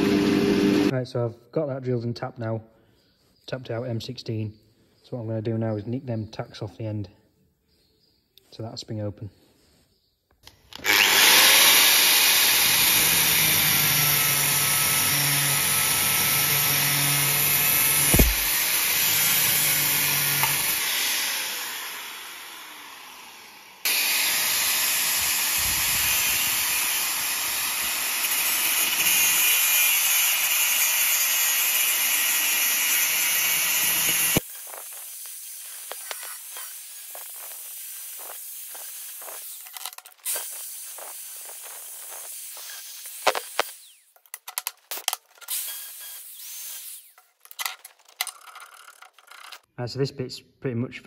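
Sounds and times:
angle grinder cutting steel: 0:00.0 - 0:00.9, 0:10.7 - 0:49.7.

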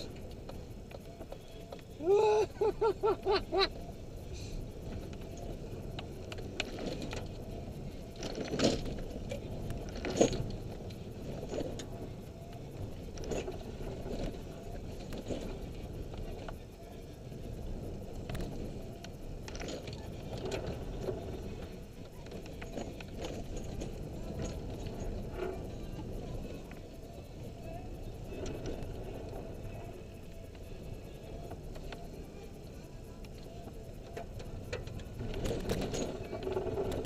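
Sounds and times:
tyres on gravel road: 0:00.0 - 0:37.0.

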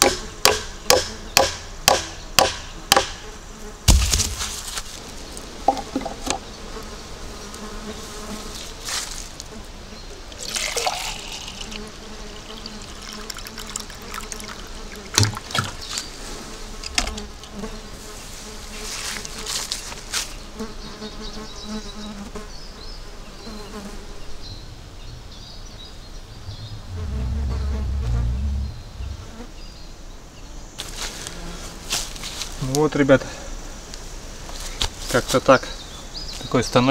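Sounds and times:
flies buzzing: 0:00.0 - 0:29.8
short knocks: 0:05.7 - 0:06.4
low rumble: 0:24.7 - 0:29.4.

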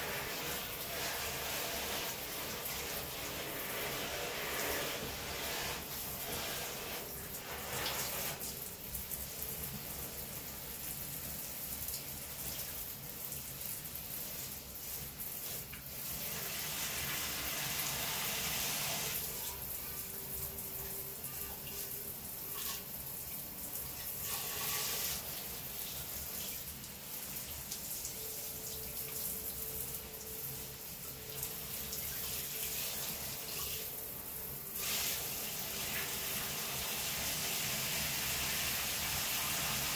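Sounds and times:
shower head spraying water: 0:00.0 - 0:08.6, 0:14.1 - 0:19.7, 0:20.6 - 0:39.9.

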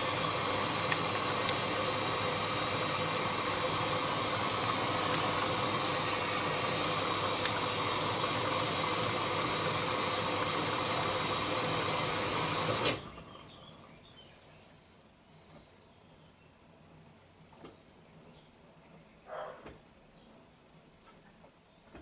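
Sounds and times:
washing machine humming: 0:00.0 - 0:13.8.

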